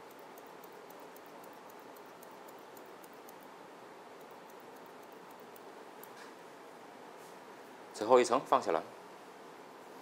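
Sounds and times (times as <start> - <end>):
scissors snipping hair: 0.0 - 3.5, 4.2 - 6.2
faint steady hiss: 0.0 - 10.0.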